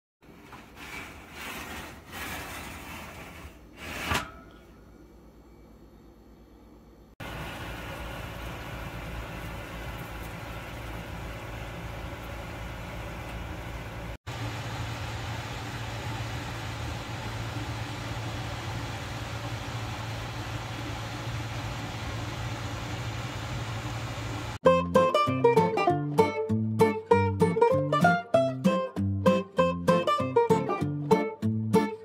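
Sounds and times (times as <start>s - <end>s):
kitchen appliance humming: 6.8s - 24.6s.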